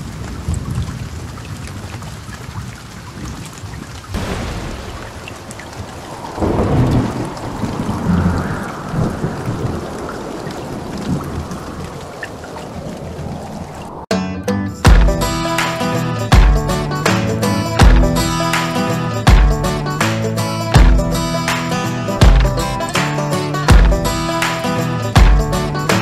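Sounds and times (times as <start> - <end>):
thunder rumbling: 0.0 - 14.1
heavy rain hissing: 4.1 - 14.1.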